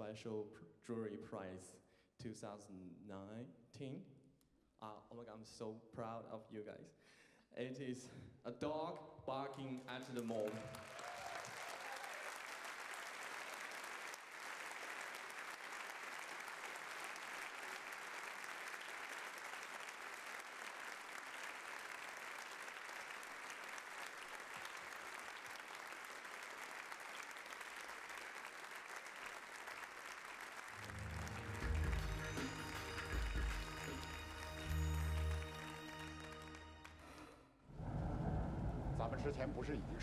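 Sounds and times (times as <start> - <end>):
audience applauding: 10.0 - 37.4
music: 30.8 - 37.3.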